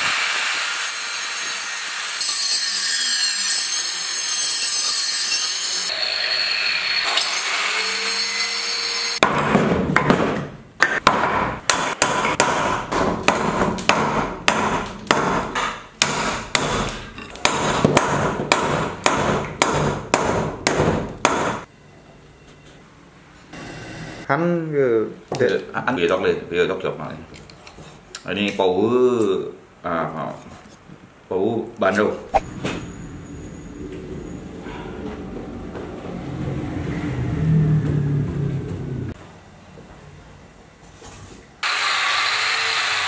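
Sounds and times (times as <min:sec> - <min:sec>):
hard sharp blows: 0:09.2 - 0:21.7.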